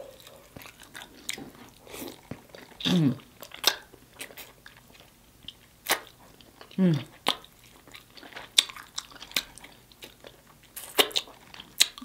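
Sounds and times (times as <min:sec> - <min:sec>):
person chewing and lip smacking: 0:00.0 - 0:12.0
person humming: 0:02.8 - 0:03.2, 0:06.8 - 0:07.1.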